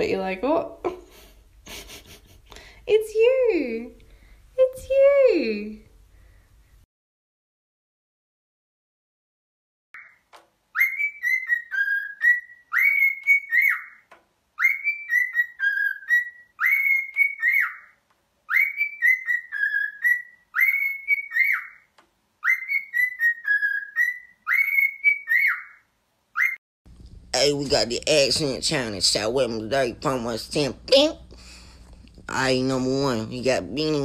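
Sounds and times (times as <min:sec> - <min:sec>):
cockatiel whistling a tune: 0:10.0 - 0:14.0, 0:14.6 - 0:21.8, 0:22.4 - 0:25.8, 0:26.4 - 0:26.6.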